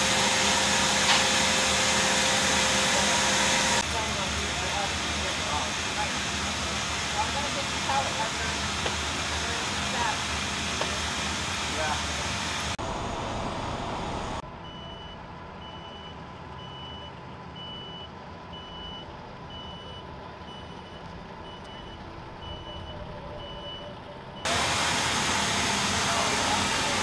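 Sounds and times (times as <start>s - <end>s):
loud steady machinery noise: 0.0s - 14.4s, 21.2s - 27.0s
low engine hum: 0.0s - 27.0s
vehicle backup alarm beeping: 14.6s - 24.8s.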